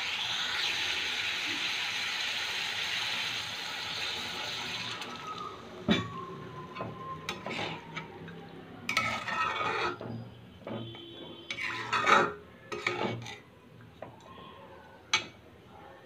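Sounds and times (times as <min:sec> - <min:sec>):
metal spatula scraping a metal pan: 0:07.3 - 0:08.1, 0:08.9 - 0:13.5.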